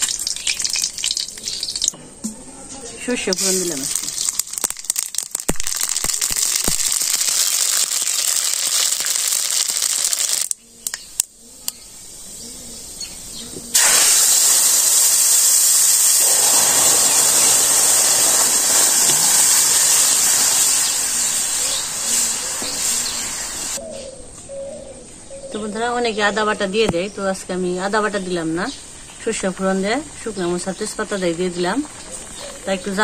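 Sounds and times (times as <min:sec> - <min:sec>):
liquid poured into hot oil: 0:00.0 - 0:01.9, 0:03.3 - 0:10.5, 0:13.7 - 0:23.8
loud steady sizzle: 0:00.0 - 0:02.0, 0:03.0 - 0:10.6, 0:11.9 - 0:23.8
seeds spluttering in hot oil: 0:00.0 - 0:02.0, 0:03.2 - 0:10.6, 0:13.7 - 0:23.8.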